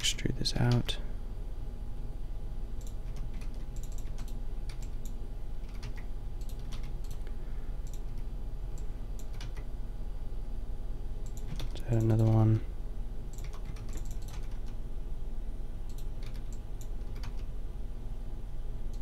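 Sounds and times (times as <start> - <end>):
low electrical hum: 0.0 - 19.0
keyboard and mouse clicking: 2.8 - 7.2, 8.8 - 9.7, 11.2 - 12.3, 13.3 - 14.8, 15.9 - 17.5.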